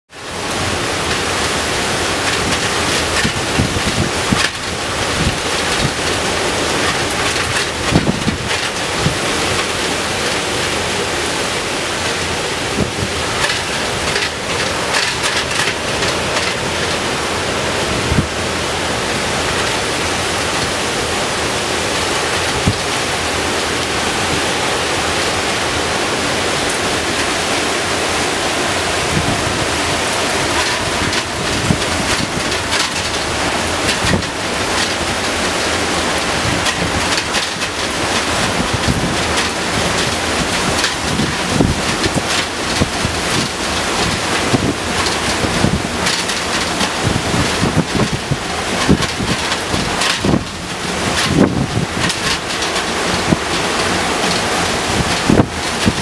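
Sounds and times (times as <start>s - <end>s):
heavy surf breaking: 0.1s - 56.0s
wind buffeting the microphone: 0.4s - 56.0s.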